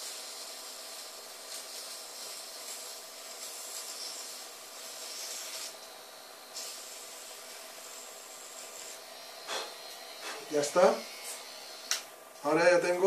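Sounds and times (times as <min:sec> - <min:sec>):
eraser rasping on sandpaper: 0:00.0 - 0:05.8
small motor hum: 0:00.0 - 0:12.2.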